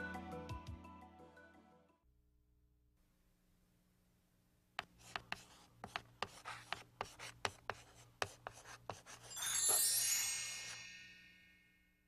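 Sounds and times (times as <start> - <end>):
chalk scratching on chalkboard: 4.8 - 9.8
bright shimmering chime: 9.3 - 12.0.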